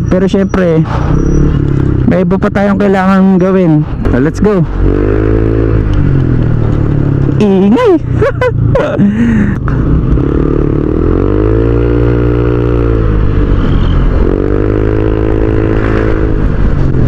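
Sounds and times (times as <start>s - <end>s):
loud scooter engine accelerating: 4.0s - 17.0s.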